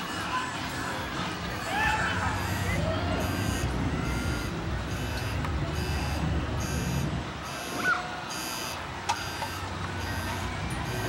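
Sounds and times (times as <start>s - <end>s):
low rumble of outdoor noise: 0.0s - 11.0s
high-pitched electronic beep: 2.3s - 11.0s.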